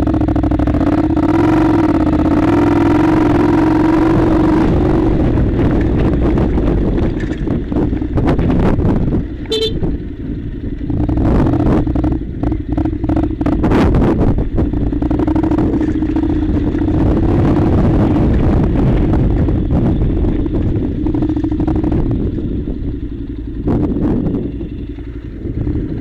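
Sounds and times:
motorcycle engine running: 0.0 - 26.0
knocks and rattles on gravel: 5.4 - 9.5, 14.1 - 22.4
brief high tone: 9.5 - 9.9.

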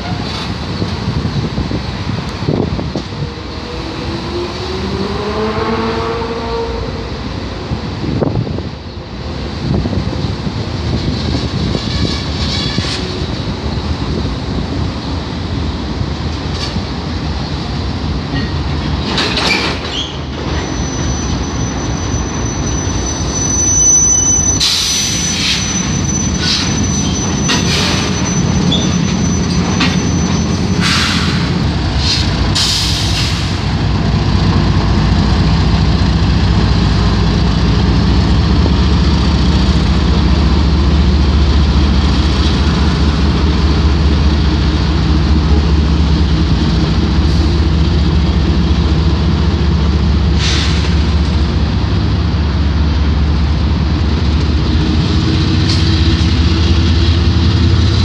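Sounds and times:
diesel locomotive drone: 0.0 - 58.0
train wheels rumbling on rails: 0.0 - 58.0
metallic screeches and clanks: 11.4 - 13.3, 18.4 - 33.4
high wheel squeal: 19.3 - 33.6.

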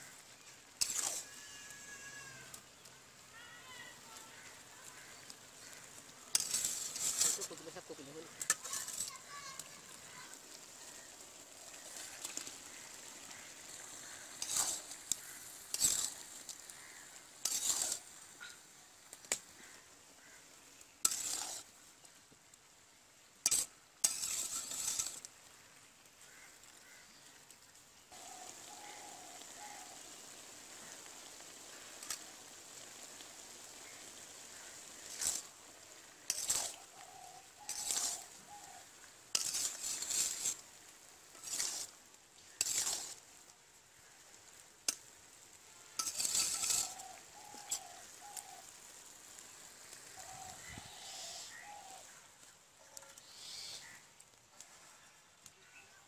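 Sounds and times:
food sizzling in metal pot: 0.0 - 56.0
metal spatula scraping pot: 0.7 - 1.4, 4.4 - 9.7, 11.7 - 18.2, 21.0 - 21.7, 23.4 - 25.3, 35.0 - 35.5, 36.2 - 38.4, 39.3 - 40.6, 41.3 - 43.2, 46.0 - 48.0.

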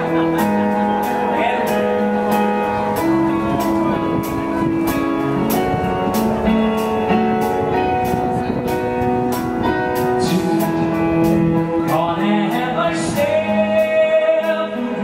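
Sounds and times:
rock band playing: 0.0 - 15.0.

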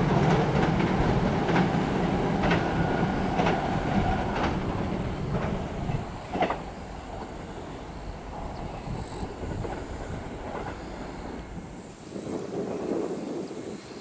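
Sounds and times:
train wheels clacking over rail joints: 0.0 - 7.4
train rumble on steel bridge: 0.0 - 14.0.

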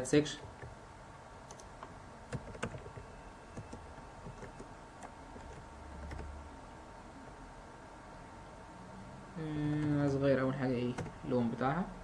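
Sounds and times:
keyboard keystrokes: 1.5 - 3.0, 3.6 - 6.3, 10.9 - 11.2.

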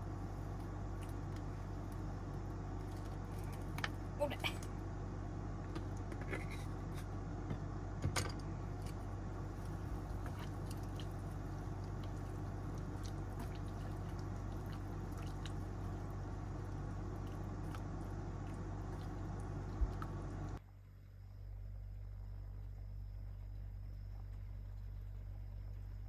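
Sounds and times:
broth simmering: 0.0 - 7.9, 8.5 - 20.6.

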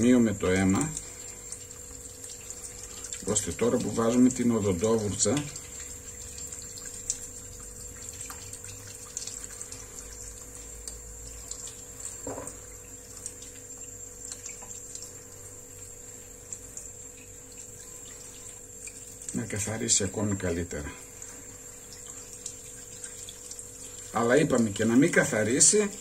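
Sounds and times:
toothbrush scrubbing fish: 0.0 - 26.0
water splashes: 0.0 - 26.0
tap running into sink: 10.6 - 15.1.

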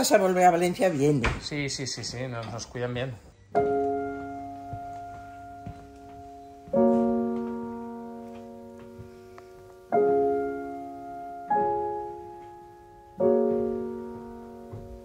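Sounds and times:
slow piano chords: 3.5 - 15.0.

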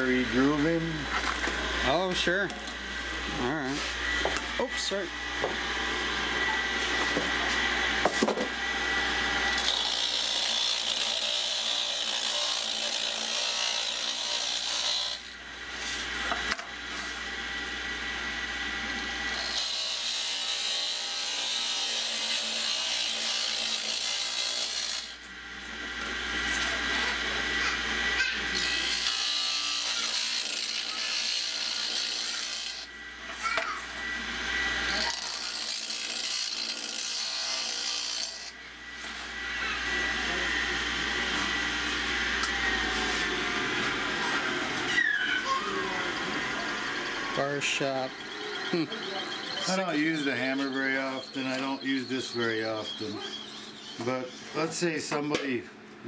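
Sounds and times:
grinder humming: 0.0 - 56.0
steel grinding on wheel: 9.5 - 16.2, 18.9 - 25.2, 28.5 - 32.9, 34.8 - 39.3.

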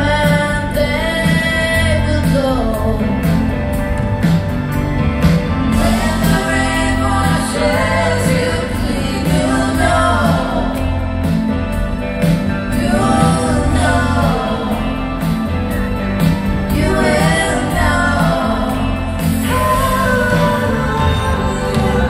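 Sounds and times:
person singing: 0.0 - 3.6, 12.6 - 22.0
live rock band playing: 0.0 - 22.0.

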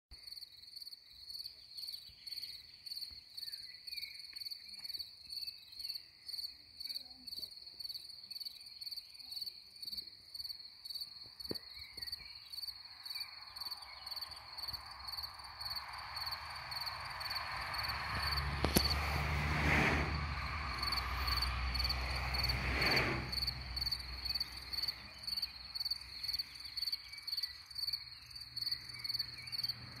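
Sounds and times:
cricket chirping: 0.2 - 30.0
rushing noise with low rumble: 15.4 - 24.6.

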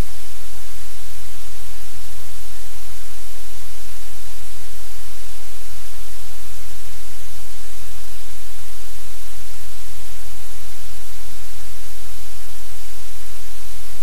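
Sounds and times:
low electrical hum: 0.0 - 14.0
static hiss: 0.0 - 14.0.

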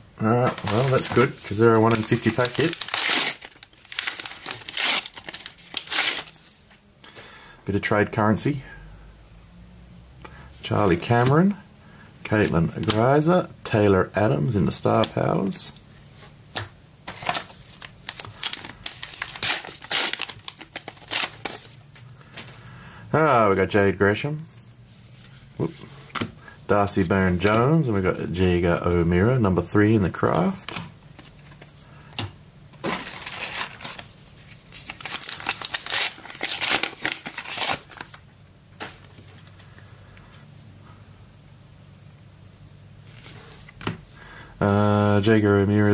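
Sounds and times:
wrapper crinkling and tearing: 0.4 - 6.5, 17.1 - 21.8, 32.8 - 38.2
cards being handled: 0.4 - 6.7.

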